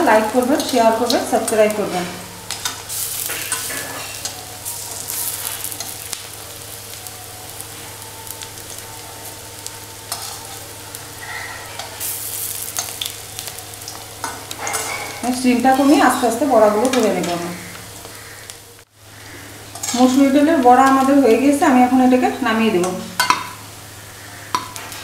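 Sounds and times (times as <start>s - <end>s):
fritters sizzling in oil: 0.0s - 25.0s
spatula scraping metal pan: 14.2s - 16.2s, 19.4s - 21.1s.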